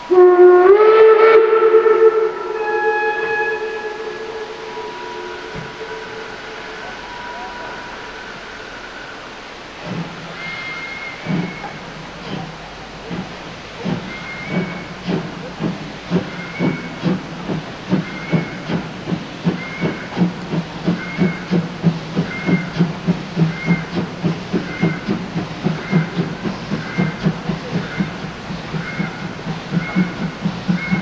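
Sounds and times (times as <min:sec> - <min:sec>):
steam locomotive exhaust chuffs: 0:00.0 - 0:31.0.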